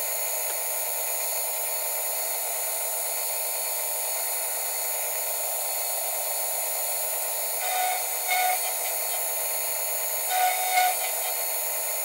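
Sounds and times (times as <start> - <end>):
milling machine cutting metal: 7.6 - 12.0.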